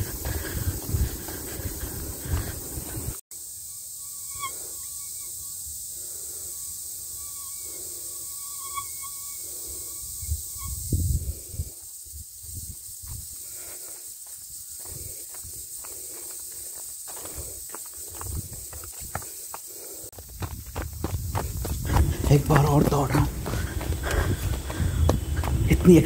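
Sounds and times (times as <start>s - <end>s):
running footsteps on a trail: 0.0s - 3.2s, 11.8s - 26.0s.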